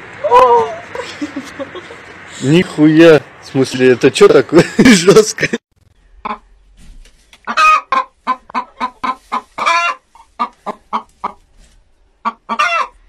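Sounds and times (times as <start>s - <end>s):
hen clucking: 6.1s - 13.0s.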